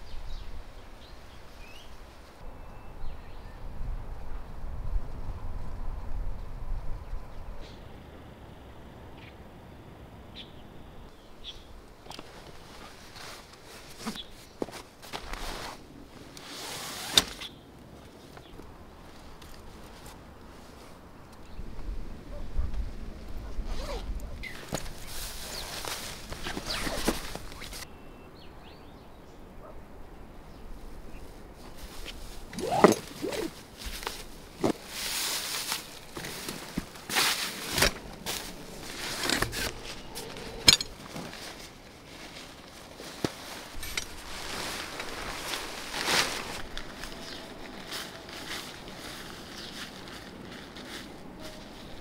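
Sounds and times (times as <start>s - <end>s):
camping gear rustling and crinkling: 11.7s - 27.9s, 30.7s - 52.0s.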